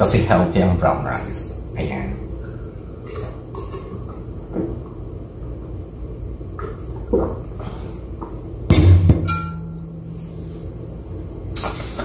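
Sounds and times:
low hum: 8.0 - 11.7.

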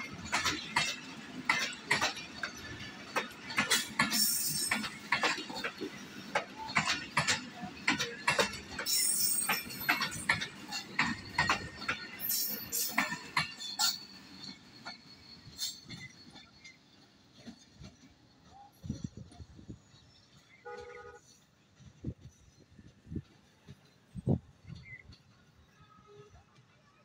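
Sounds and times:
train wheels clattering over rail joints: 0.0 - 20.6.

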